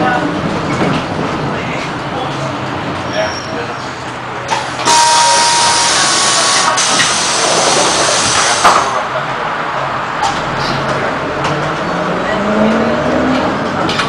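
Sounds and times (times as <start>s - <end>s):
pneumatic clunk: 4.5s - 9.0s.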